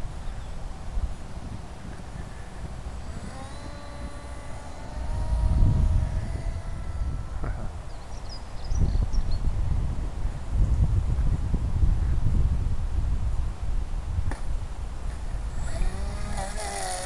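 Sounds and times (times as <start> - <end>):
electric motor and propeller whining: 0.0 - 9.2, 14.3 - 17.0
wind rumble on microphone: 0.0 - 17.0.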